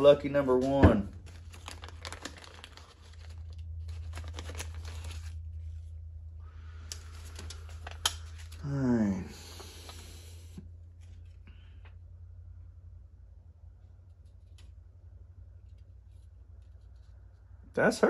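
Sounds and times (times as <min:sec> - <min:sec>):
steady low hum: 0:00.0 - 0:18.0
plastic bag crinkling: 0:00.6 - 0:05.9, 0:06.8 - 0:08.6.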